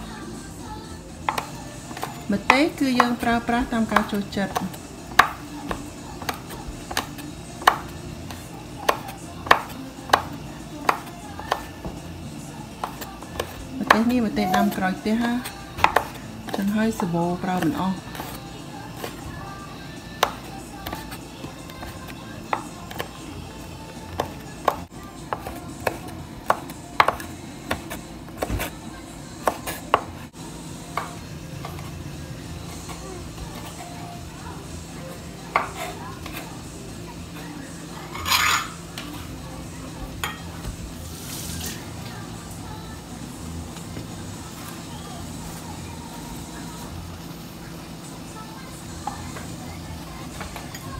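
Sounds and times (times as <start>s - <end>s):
knife chopping on wooden board: 1.3s - 12.0s, 12.8s - 18.4s, 20.2s - 23.1s, 24.1s - 28.7s, 29.4s - 30.2s, 30.9s - 31.9s, 35.5s - 36.4s.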